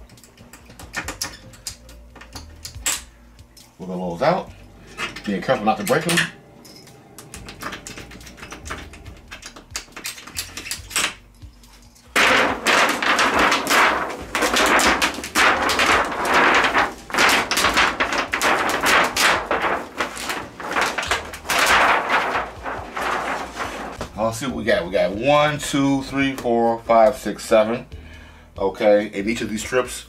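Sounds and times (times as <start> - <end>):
panel crackling and rustling: 4.7 - 11.2, 12.0 - 26.6.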